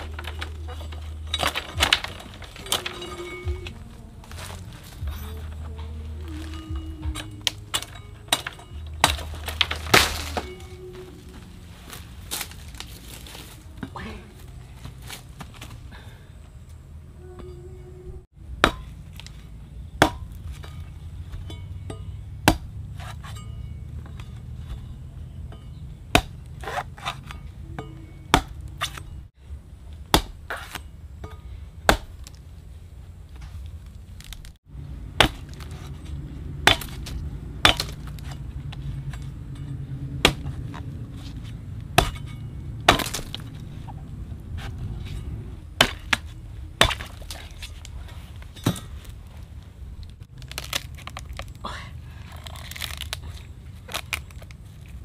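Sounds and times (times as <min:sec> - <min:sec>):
steady low rumble: 0:00.0 - 0:26.6, 0:27.2 - 0:55.0
blade chopping strikes: 0:22.4 - 0:23.4, 0:26.1 - 0:27.4, 0:28.3 - 0:29.1, 0:31.8 - 0:32.3, 0:35.2 - 0:38.4, 0:41.9 - 0:43.7.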